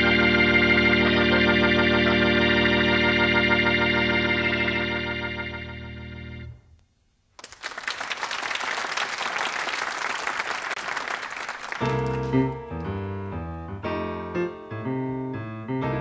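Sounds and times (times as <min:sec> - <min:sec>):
jazz organ chords: 0:00.0 - 0:06.7, 0:11.8 - 0:16.0
audience applause: 0:07.4 - 0:12.6.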